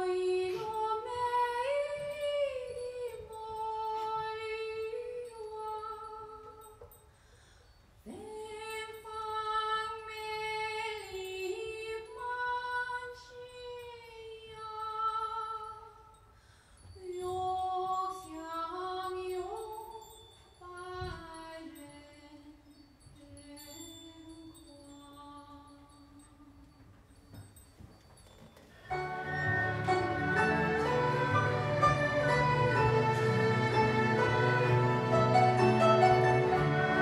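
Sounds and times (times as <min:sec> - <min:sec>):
erhu solo melody: 0:28.9 - 0:37.0.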